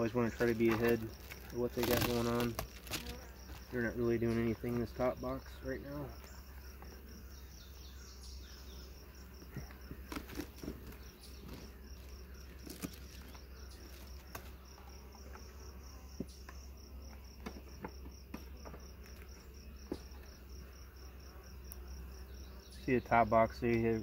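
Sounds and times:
cricket chirping: 0:00.0 - 0:24.0
wooden hive boxes knocking: 0:00.2 - 0:04.9, 0:16.1 - 0:20.2.

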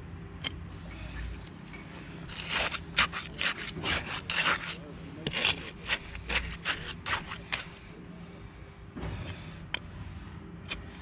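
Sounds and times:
trowel scraping wet concrete: 0:02.0 - 0:08.0.

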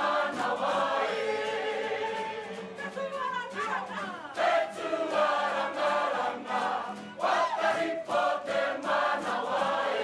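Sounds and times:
women singing in unison: 0:00.0 - 0:10.0.

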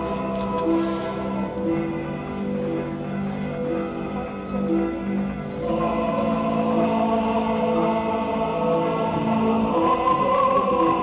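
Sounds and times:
choir chanting long notes: 0:00.0 - 0:01.7, 0:05.6 - 0:11.0.

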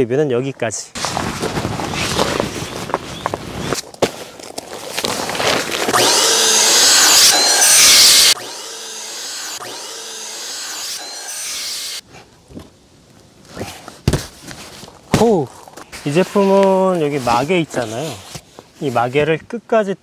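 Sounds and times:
electric air pump: 0:05.9 - 0:12.0.

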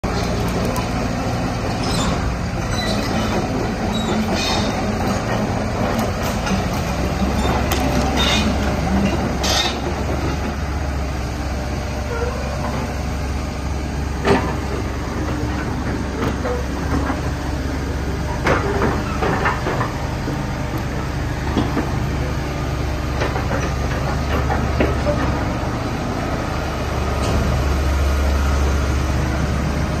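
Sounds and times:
excavator diesel engine droning: 0:00.0 - 0:30.0.

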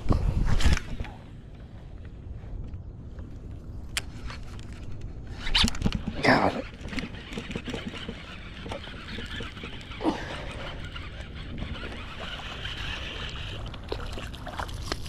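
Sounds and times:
low steady rumble: 0:00.0 - 0:15.0
fishing reel zipper-like whirs: 0:04.1 - 0:15.0
reel ticking as cranked: 0:05.6 - 0:13.7.

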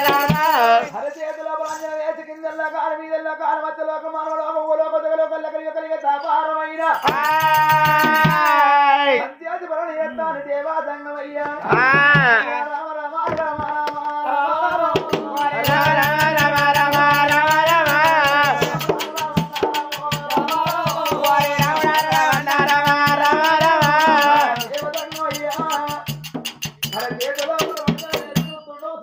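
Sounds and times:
fast hand-drum strokes: 0:00.0 - 0:00.8, 0:07.0 - 0:08.7, 0:11.6 - 0:12.5, 0:14.8 - 0:28.6
jingling percussion: 0:00.0 - 0:01.9, 0:06.8 - 0:09.1, 0:14.7 - 0:29.0.

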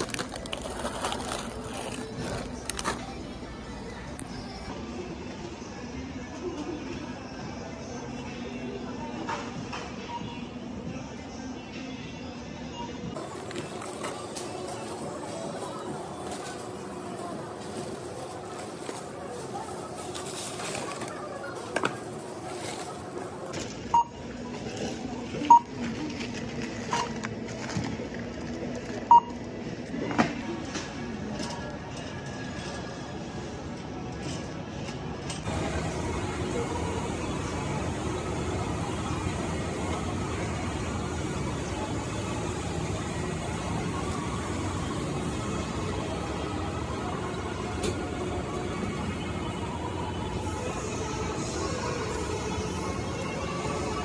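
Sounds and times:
shopping cart wheels rumbling: 0:00.0 - 0:04.0, 0:13.2 - 0:29.4, 0:30.6 - 0:47.3
store hubbub: 0:00.0 - 0:54.0.

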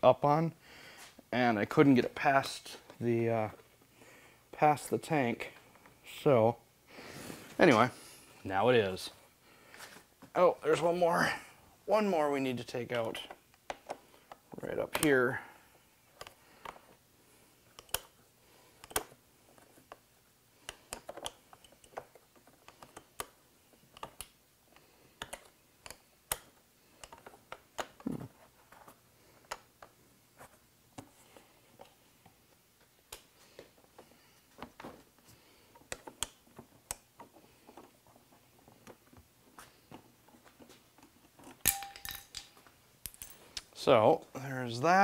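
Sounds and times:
small clicks and light taps: 0:20.6 - 0:28.1.

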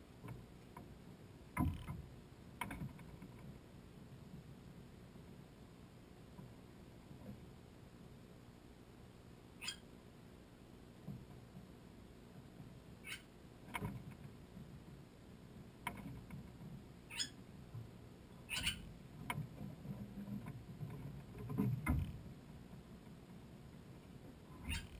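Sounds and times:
starlings giving harsh calls: 0:17.1 - 0:17.4, 0:18.5 - 0:18.8.

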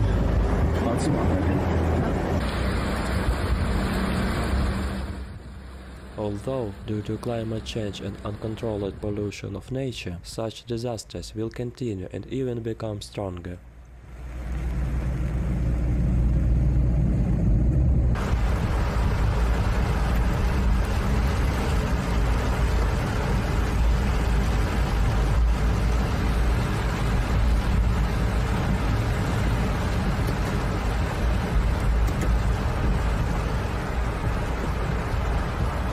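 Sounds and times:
tyre and road noise: 0:00.0 - 0:09.1, 0:13.6 - 0:35.9
rain on car glass and roof: 0:00.0 - 0:09.4, 0:13.9 - 0:16.3, 0:18.1 - 0:35.9
deep low rumble: 0:13.7 - 0:35.9.

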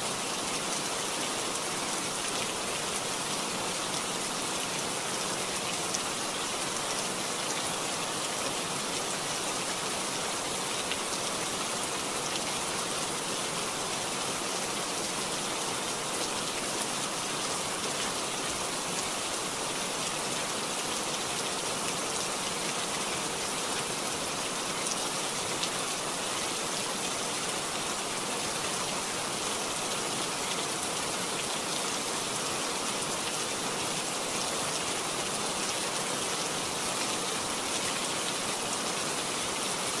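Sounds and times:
floodwater pouring down slope: 0:00.0 - 0:40.0.

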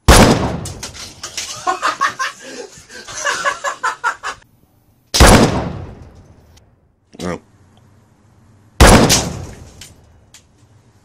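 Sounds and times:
rifle shots: 0:00.0 - 0:01.0, 0:05.2 - 0:06.2, 0:08.8 - 0:10.0
person laughing: 0:01.5 - 0:04.4.

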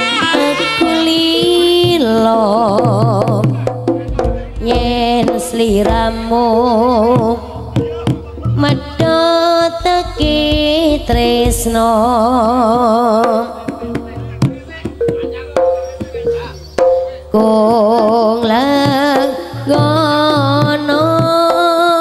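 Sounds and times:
gamelan music: 0:00.0 - 0:02.6, 0:03.7 - 0:20.4
hand drum strokes: 0:00.0 - 0:22.0
low bass: 0:04.0 - 0:09.0, 0:09.7 - 0:13.0
wavering melody line: 0:05.6 - 0:18.3.

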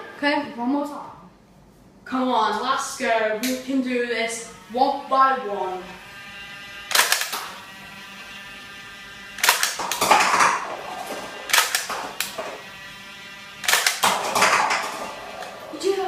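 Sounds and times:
foam-dart blaster clacks: 0:06.9 - 0:07.6, 0:09.4 - 0:12.5, 0:13.6 - 0:15.5
plastic cups clattering: 0:09.6 - 0:12.6, 0:13.7 - 0:15.6.

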